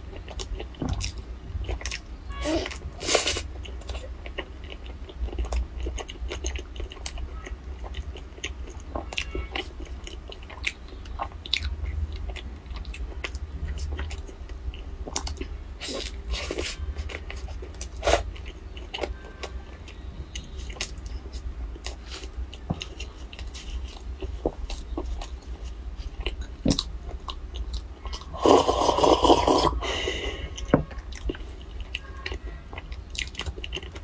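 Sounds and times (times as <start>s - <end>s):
chewing and crunching crab: 0.0s - 34.0s.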